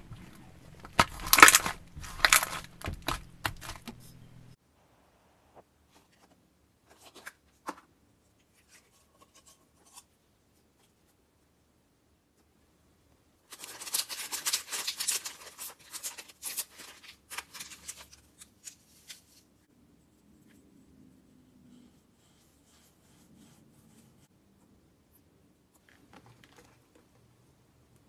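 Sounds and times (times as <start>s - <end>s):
paper packet crinkling: 0.0s - 4.6s, 13.5s - 19.3s.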